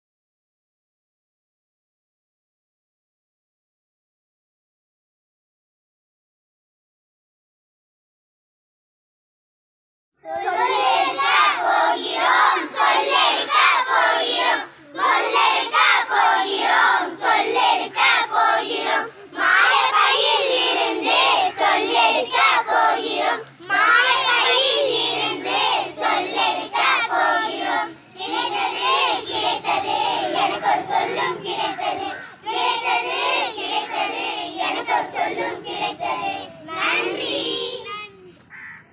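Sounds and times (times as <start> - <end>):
children singing together: 10.2 - 37.9.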